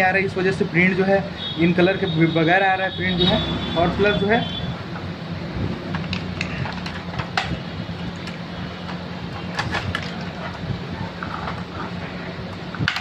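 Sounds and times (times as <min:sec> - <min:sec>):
plastic parts clicking and rattling: 0:05.9 - 0:07.6, 0:08.2 - 0:10.6, 0:12.6 - 0:13.0.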